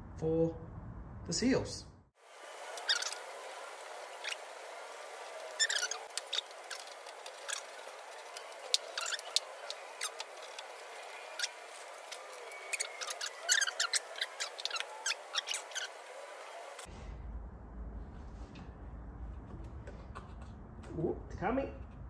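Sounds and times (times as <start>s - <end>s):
plastic clicks and squeaks: 5.6s - 15.9s.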